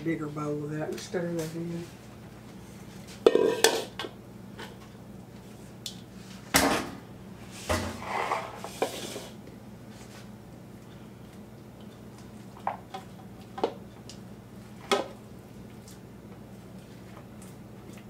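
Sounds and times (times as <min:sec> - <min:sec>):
kitchenware clattering: 0:03.3 - 0:04.0.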